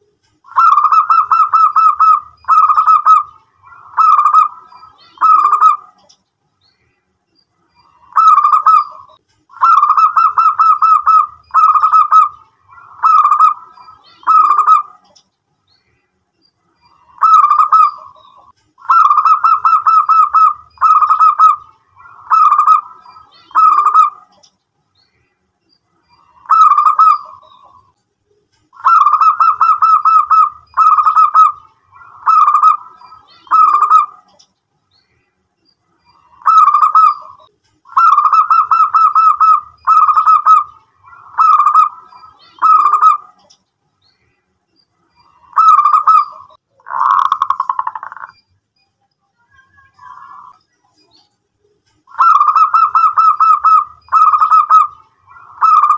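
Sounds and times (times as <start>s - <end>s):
dove cooing and trilling: 0.5s - 6.0s, 7.9s - 15.2s, 16.9s - 24.4s, 26.2s - 27.8s, 28.8s - 34.4s, 36.2s - 43.4s, 45.3s - 48.3s, 52.1s - 55.9s.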